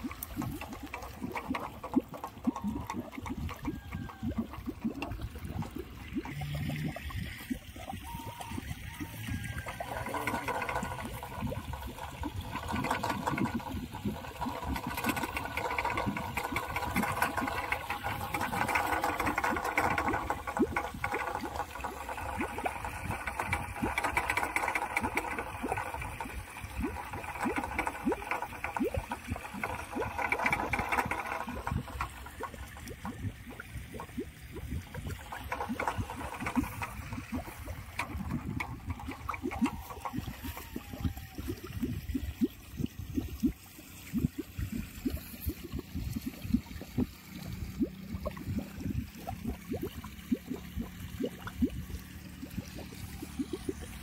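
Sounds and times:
wind spinner clattering on metal rod: 0.0s - 7.3s, 9.0s - 42.2s.

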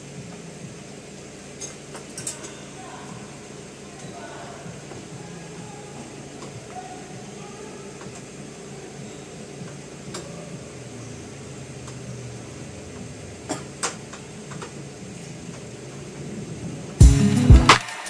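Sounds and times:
hand tools clicking and tapping: 1.6s - 3.4s, 6.3s - 7.4s, 13.0s - 16.0s.

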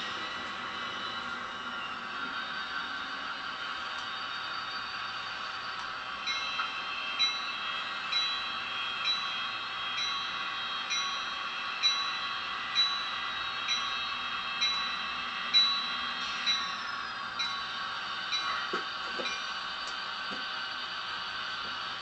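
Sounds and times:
locomotive bell ringing: 6.2s - 19.7s.

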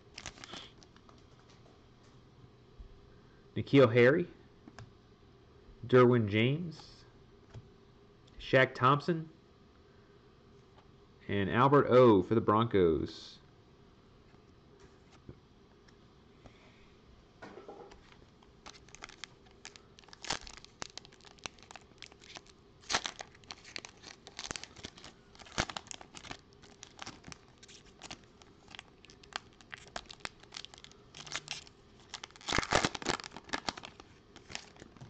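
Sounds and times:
foil wrapper crinkling and tearing: 0.0s - 1.0s, 18.0s - 35.0s.

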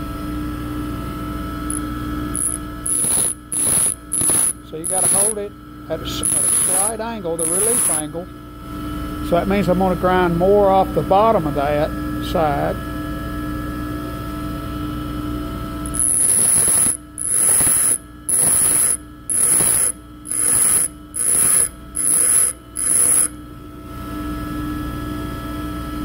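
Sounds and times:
tool bit grinding hiss: 1.7s - 5.4s, 6.1s - 8.2s, 15.9s - 23.3s
bench grinder humming: 1.7s - 8.2s, 15.8s - 23.4s.

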